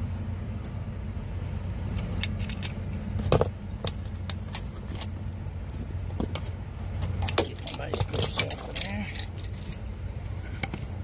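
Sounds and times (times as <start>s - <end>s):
steady low hum: 0.0s - 11.0s
metal tools clinking on fitting: 2.0s - 5.1s, 7.1s - 10.0s.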